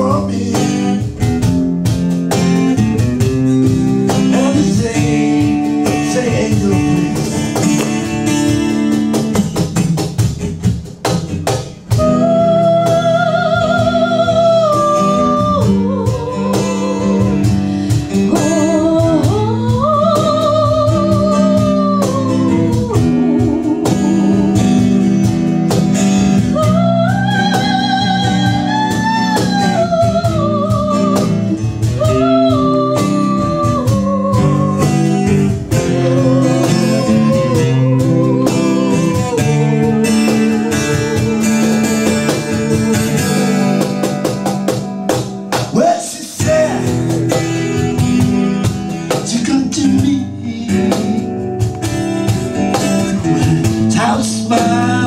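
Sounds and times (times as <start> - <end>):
woman singing with vibrato: 0.0 - 1.2, 11.9 - 25.3, 26.2 - 43.8
acoustic guitar: 0.0 - 55.0.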